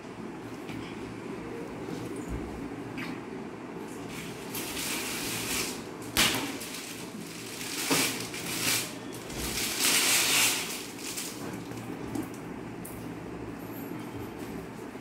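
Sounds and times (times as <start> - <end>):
plastic bags rustling: 4.0 - 12.3.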